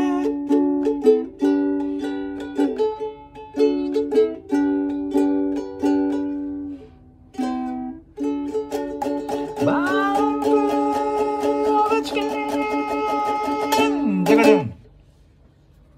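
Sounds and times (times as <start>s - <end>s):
ukulele strumming chords: 0.0s - 15.2s.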